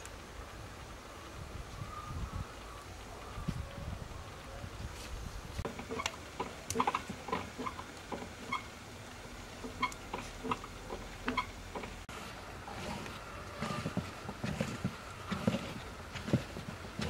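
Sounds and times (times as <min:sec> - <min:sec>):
hand kneading wet dough: 0:09.6 - 0:17.0.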